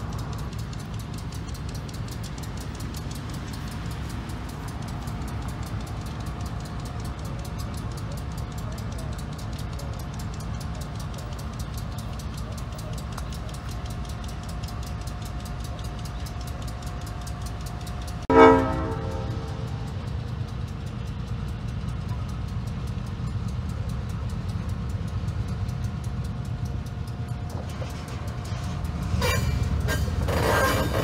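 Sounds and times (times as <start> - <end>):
diesel locomotive engine rumbling: 0.0 - 31.0
crossing bell ringing: 10.2 - 31.0
locomotive horn blast: 18.3 - 20.0.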